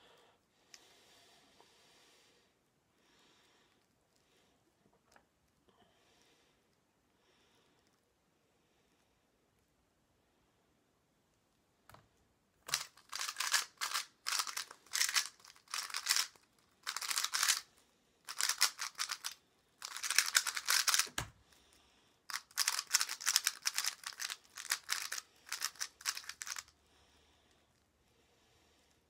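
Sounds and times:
speed cube turning clicks: 0:12.7 - 0:17.7, 0:18.3 - 0:21.3, 0:22.3 - 0:26.7.

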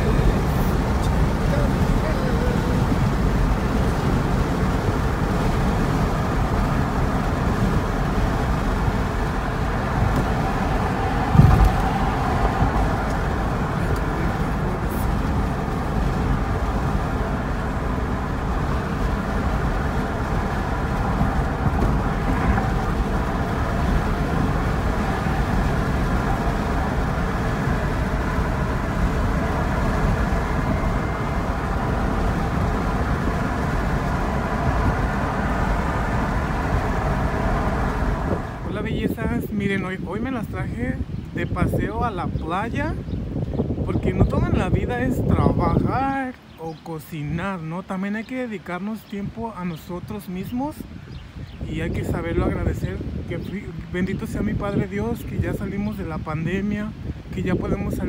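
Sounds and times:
car road and engine noise: 0:00.0 - 0:58.0
thump: 0:11.3 - 0:11.8.

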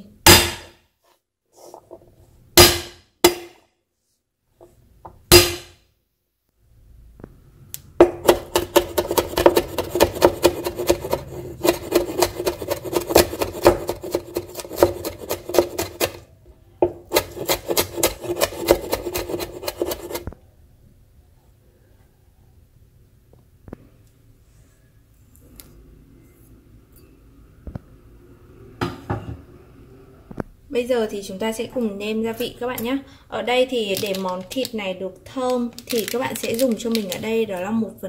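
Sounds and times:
rapid chopping on wooden board: 0:08.0 - 0:16.2, 0:17.1 - 0:20.2.

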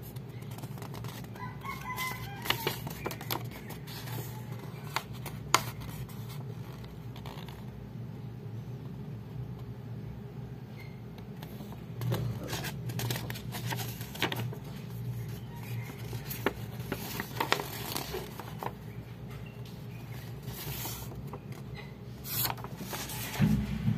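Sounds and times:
steady low hum: 0:02.9 - 0:23.9
cards handled clicks and scrapes: 0:11.2 - 0:15.0.

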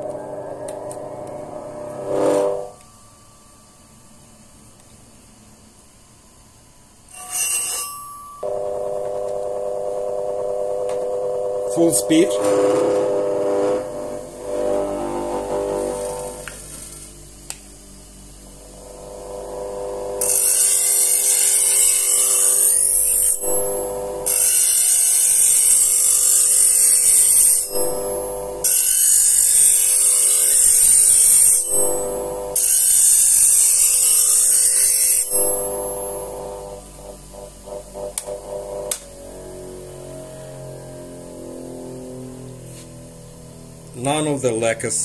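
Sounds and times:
grinder motor hum: 0:00.0 - 0:02.9, 0:07.1 - 0:44.7
knife grinding high hiss: 0:07.1 - 0:08.5, 0:12.1 - 0:17.2, 0:18.6 - 0:38.9.

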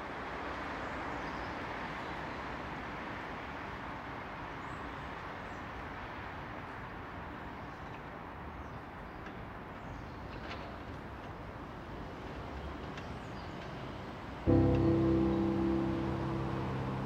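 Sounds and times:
distant road traffic hum: 0:06.0 - 0:17.0.

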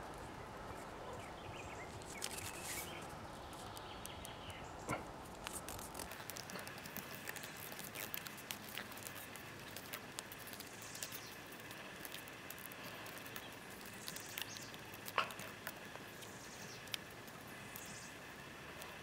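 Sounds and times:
tape crackling and clicking: 0:01.8 - 0:19.0
fingers rubbing on tape: 0:05.2 - 0:17.9.

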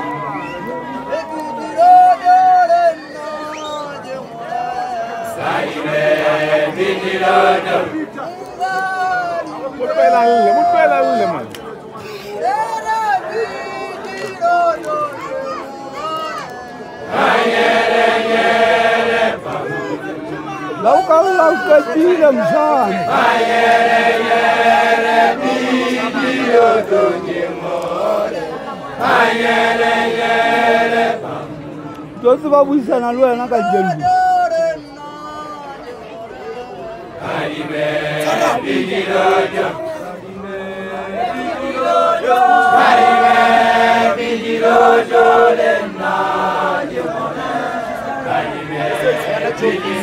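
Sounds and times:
male group chanting: 0:05.0 - 0:08.0, 0:17.1 - 0:31.6, 0:37.2 - 0:50.0.

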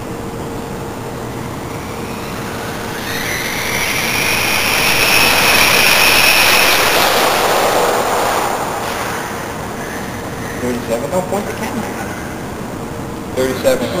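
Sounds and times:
rc truck motor whine: 0:01.2 - 0:10.1.

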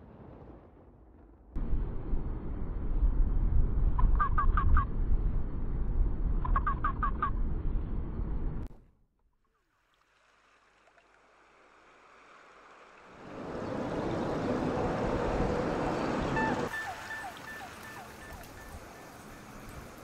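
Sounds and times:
rushing water: 0:09.8 - 0:20.0.

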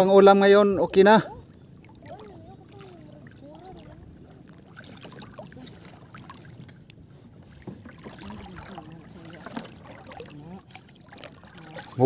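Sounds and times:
shallow water sloshing and splashing: 0:00.0 - 0:12.0
faint voice: 0:02.0 - 0:04.3.

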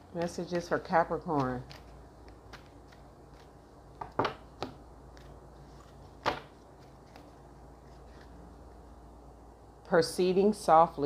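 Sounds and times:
cards snapping and tapping: 0:01.3 - 0:05.3.

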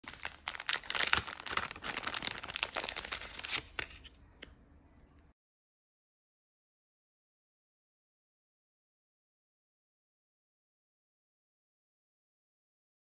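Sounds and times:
paper crinkling and tearing: 0:00.0 - 0:04.2.

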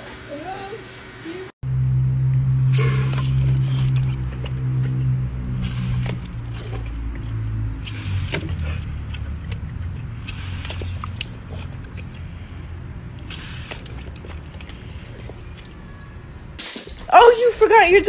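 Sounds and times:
low rumble: 0:01.6 - 0:15.5
hose nozzle spraying water: 0:02.5 - 0:04.6, 0:05.4 - 0:11.5, 0:13.2 - 0:14.8.

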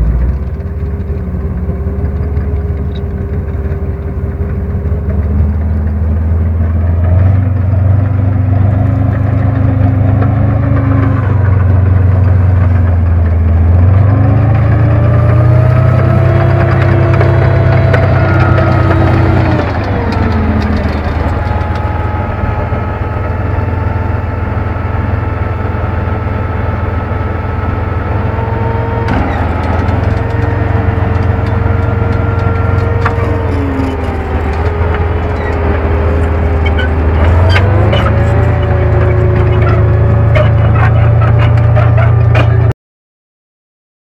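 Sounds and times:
rattles and clicks: 0:00.0 - 0:24.0, 0:27.9 - 0:42.7
tank engine droning and whining: 0:00.0 - 0:42.7.

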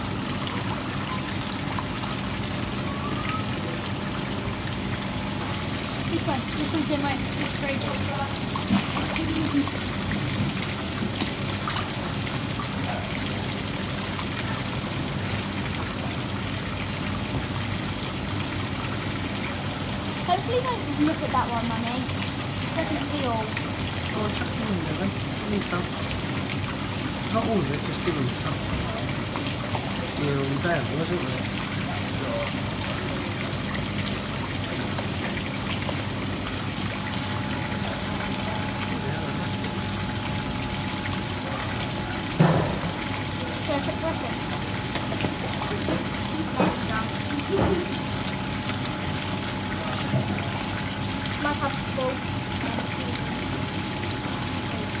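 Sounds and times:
low steady hum: 0:00.0 - 0:55.0
pond water trickling and splashing: 0:00.0 - 0:55.0.

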